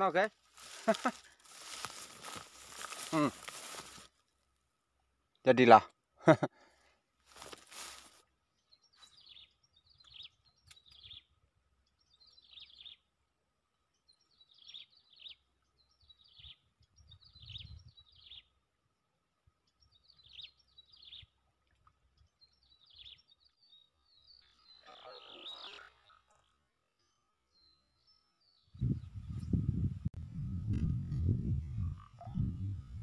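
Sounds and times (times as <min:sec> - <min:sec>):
high bird chirps: 0:22.6 - 0:29.4.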